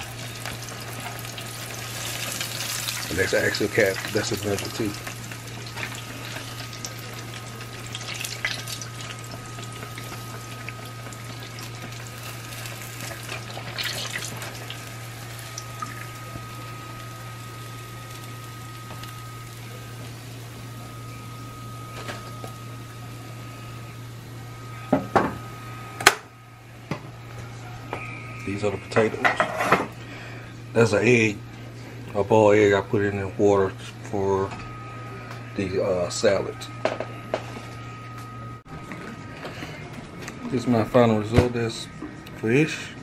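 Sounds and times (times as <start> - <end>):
fish sizzling in hot oil: 0.0 - 22.8.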